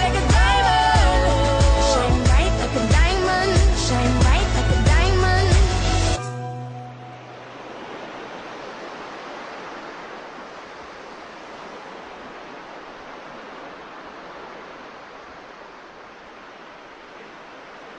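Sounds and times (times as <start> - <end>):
wind: 0.0 - 17.9
sea rushing: 6.9 - 17.9.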